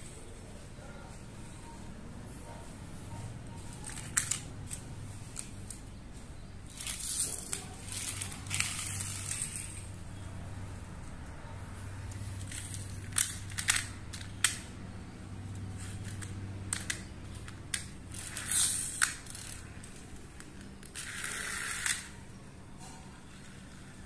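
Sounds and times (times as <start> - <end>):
wheels rolling on tiles: 3.5 - 6.0, 6.6 - 14.7, 15.4 - 24.0
toy trucks clicking on tiles: 3.7 - 5.9, 6.7 - 10.3, 12.2 - 24.0.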